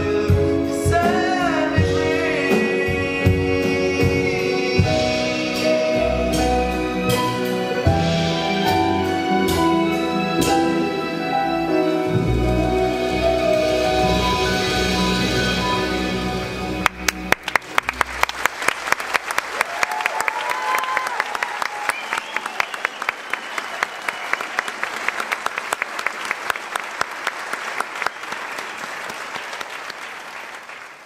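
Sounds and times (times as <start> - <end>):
keyboard and string orchestra chord: 1.7 - 18.2
audience applause: 16.8 - 31.0.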